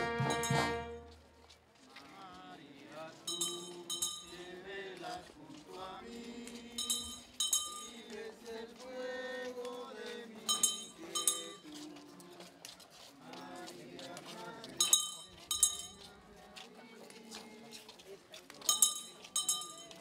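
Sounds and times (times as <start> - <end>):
people singing long notes: 2.1 - 12.6, 13.2 - 15.0
small bell ringing: 3.3 - 4.5, 6.8 - 8.1, 10.5 - 11.7, 14.8 - 16.0, 18.7 - 20.0.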